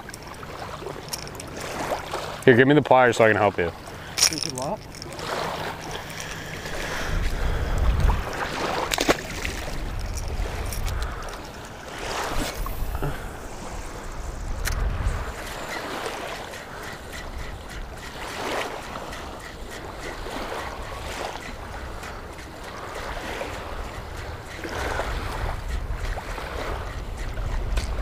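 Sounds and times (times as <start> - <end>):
water lapping on shore: 0.0 - 28.0
faint regular ticking: 1.0 - 5.2, 5.8 - 7.9, 14.0 - 28.0
wind buffeting microphone: 3.7 - 28.0.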